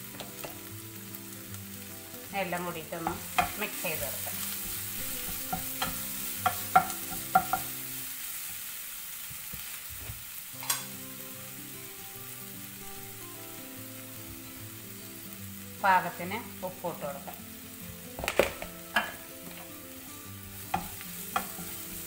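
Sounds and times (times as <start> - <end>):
vegetables sizzling in a pan: 0.0 - 22.0
spatula knocking against pan: 5.2 - 7.7.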